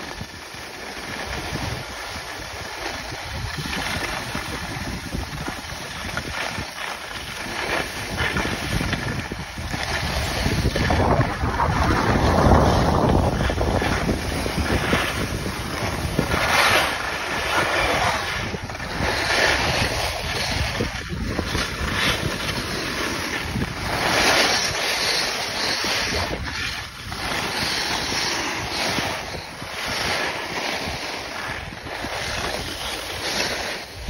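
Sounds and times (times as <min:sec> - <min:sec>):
skis sliding on snow: 0:00.0 - 0:34.0
wind rushing over microphone: 0:00.0 - 0:34.0.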